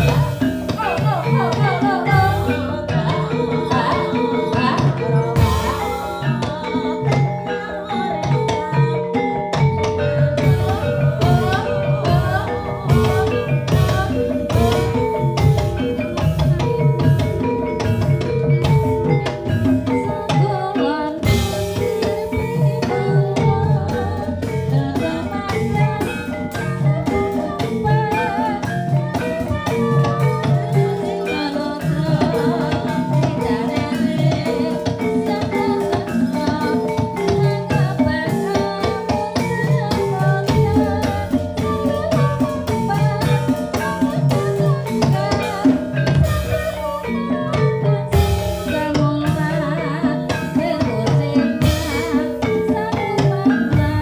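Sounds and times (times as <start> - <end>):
drum beat with melodic instruments: 0.0 - 54.0.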